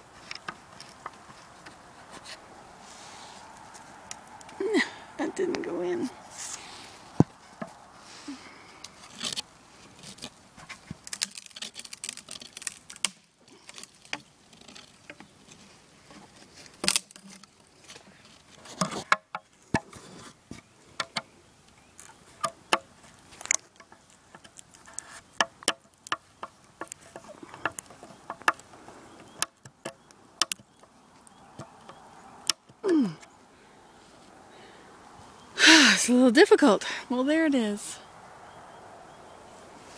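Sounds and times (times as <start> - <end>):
faint steady background noise: 0.0 - 39.9
small clicks and knocks: 0.2 - 1.8, 10.0 - 19.9, 20.5 - 21.3, 22.0 - 33.3.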